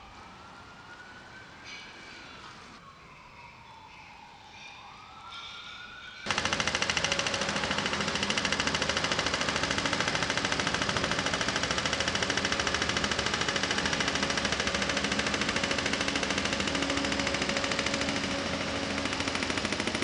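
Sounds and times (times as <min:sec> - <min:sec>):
pavement breaker hammering: 0:06.3 - 0:20.0.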